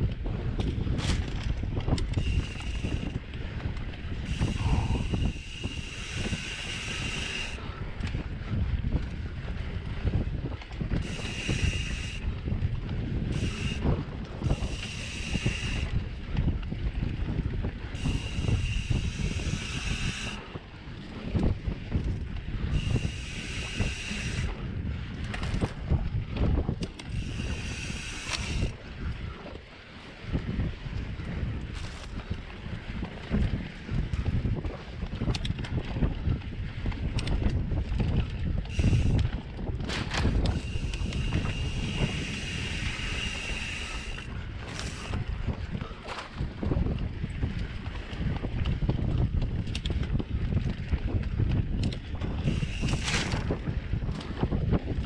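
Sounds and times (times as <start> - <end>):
bike rattling and knocking: 0.0 - 11.4, 31.4 - 55.0
bike tyre rumble: 0.0 - 55.0
wind buffeting microphone: 0.0 - 55.0
steady high buzz: 4.2 - 7.6, 18.0 - 20.5, 22.8 - 24.6, 27.1 - 28.8, 38.7 - 39.3, 40.3 - 45.2.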